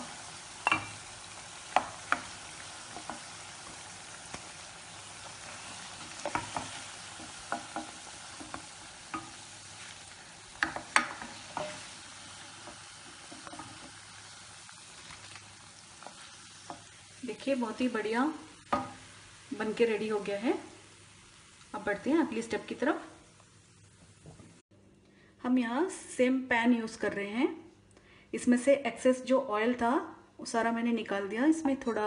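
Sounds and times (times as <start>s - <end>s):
food deep-frying in oil: 0.0s - 24.6s.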